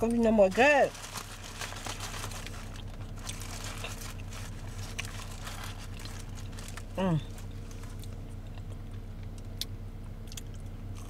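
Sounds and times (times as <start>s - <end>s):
steady low hum: 0.0s - 11.0s
food wrapper crinkling: 0.1s - 8.7s.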